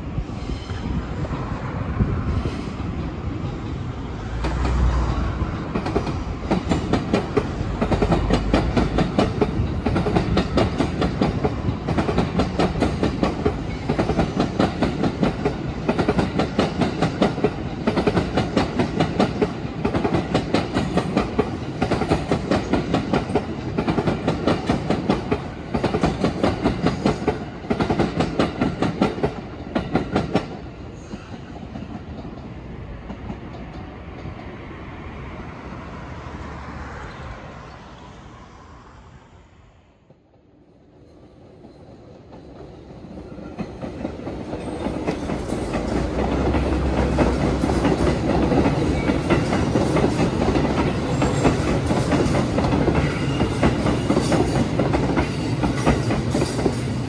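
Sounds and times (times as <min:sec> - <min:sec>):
train rumble: 0:00.0 - 0:57.0
train wheels clicking over rail joints: 0:02.8 - 0:34.6, 0:42.3 - 0:57.0.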